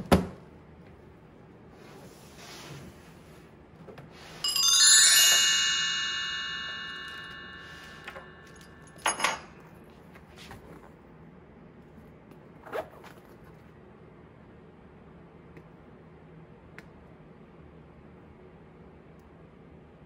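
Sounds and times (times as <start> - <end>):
bright bell-like chime: 4.4 - 9.4.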